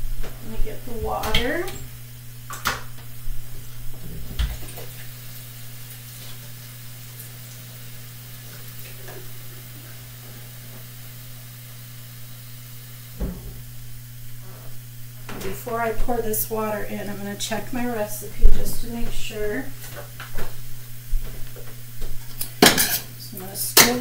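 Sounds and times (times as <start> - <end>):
steady low hum: 0.0 - 24.0
food sizzling in a skillet: 4.8 - 14.1.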